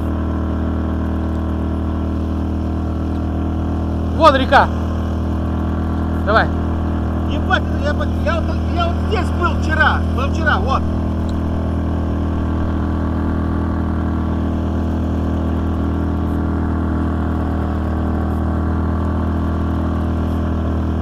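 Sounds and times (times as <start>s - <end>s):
outboard motor running: 0.0s - 21.0s.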